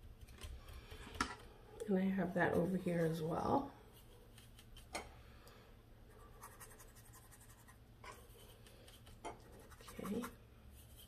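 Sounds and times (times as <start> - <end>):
paintbrush scratching on plastic: 6.1 - 11.0.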